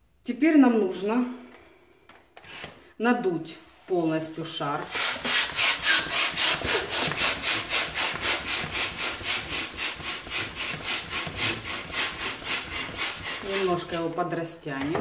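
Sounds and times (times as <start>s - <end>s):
hand pump air strokes: 4.9s - 14.1s.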